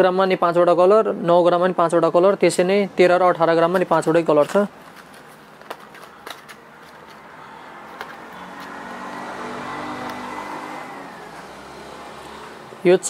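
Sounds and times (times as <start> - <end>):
vehicle passing by: 6.8 - 13.0.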